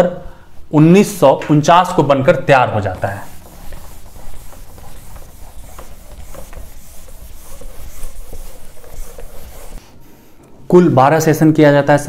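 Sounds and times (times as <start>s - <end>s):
eraser rubbing whiteboard: 2.8s - 10.0s.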